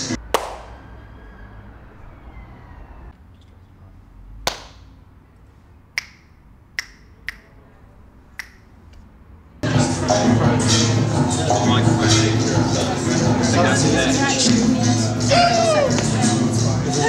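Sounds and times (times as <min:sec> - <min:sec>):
finger snaps: 0:06.0 - 0:07.5, 0:08.4 - 0:08.7.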